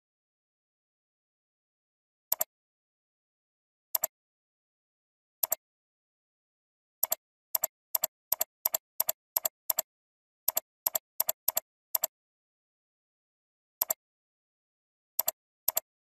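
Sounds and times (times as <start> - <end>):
computer mouse button clicking: 7.0 - 9.9, 10.5 - 12.1, 15.2 - 15.9.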